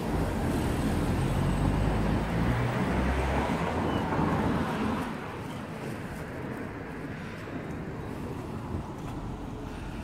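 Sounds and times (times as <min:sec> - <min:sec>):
road noise: 0:00.0 - 0:10.0.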